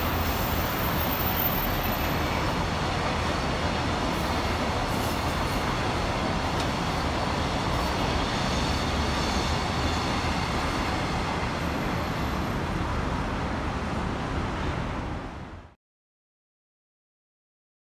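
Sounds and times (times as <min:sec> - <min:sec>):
freight train rolling past: 0:00.0 - 0:15.6
city traffic noise: 0:00.0 - 0:15.8.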